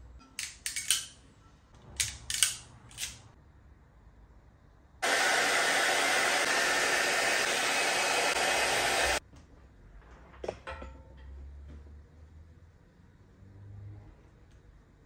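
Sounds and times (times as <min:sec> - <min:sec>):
heat gun blowing air: 0:05.0 - 0:09.2.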